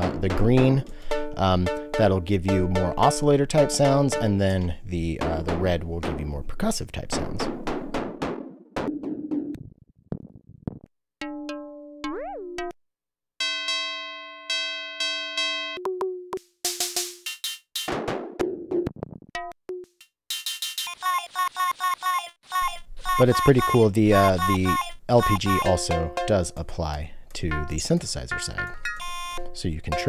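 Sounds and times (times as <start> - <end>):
percussive synth drum hits: 7.5 - 9.5
pitched synth notes: 23.2 - 26.6, 27.4 - 30.0.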